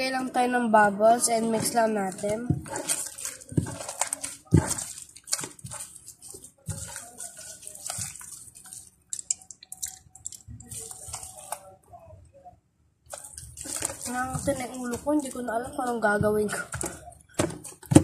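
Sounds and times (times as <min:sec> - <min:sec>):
slime squelching: 0:01.0 - 0:12.0, 0:13.1 - 0:18.0
small popping clicks: 0:08.8 - 0:11.7.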